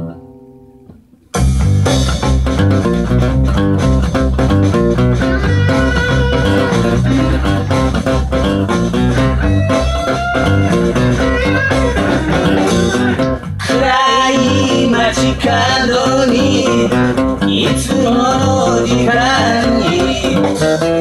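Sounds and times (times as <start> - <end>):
acoustic guitar blues playing: 0.0 - 21.0
man singing: 13.6 - 21.0.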